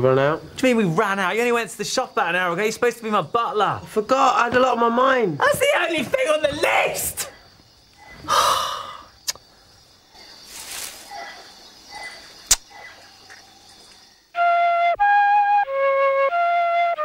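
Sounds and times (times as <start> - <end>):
slow flute melody: 14.4 - 17.0.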